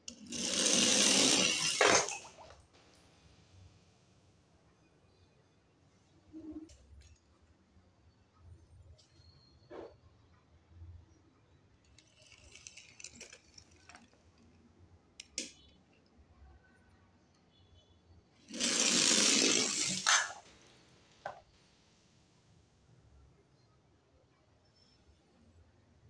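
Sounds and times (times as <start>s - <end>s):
toy clicking and rattling: 0.1s - 2.5s, 11.9s - 14.5s, 18.5s - 20.4s
toy car rushing down slide: 0.1s - 2.6s, 18.5s - 20.6s.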